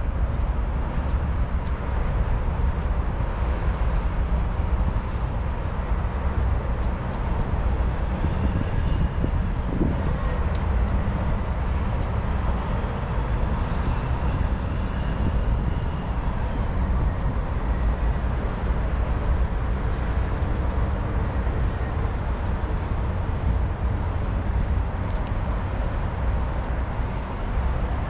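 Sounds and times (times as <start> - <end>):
low outdoor rumble: 0.0 - 28.0
faint light ticks: 0.3 - 2.0, 6.1 - 7.4, 20.3 - 21.4, 22.6 - 25.5.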